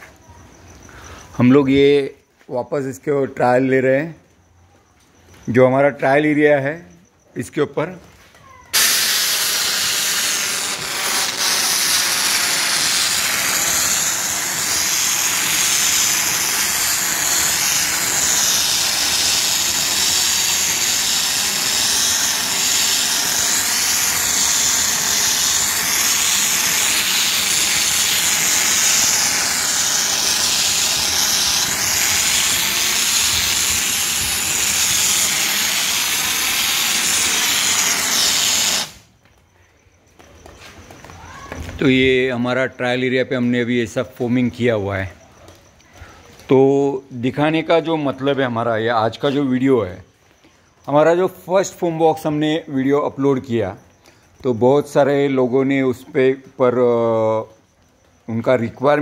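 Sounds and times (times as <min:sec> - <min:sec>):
foam jet spraying on metal wall: 0:08.7 - 0:39.1.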